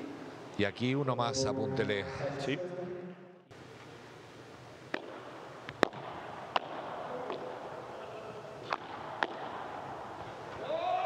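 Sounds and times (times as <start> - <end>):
low background noise: 0.0 - 11.0
padel ball struck with paddles: 4.9 - 7.8, 8.6 - 10.6.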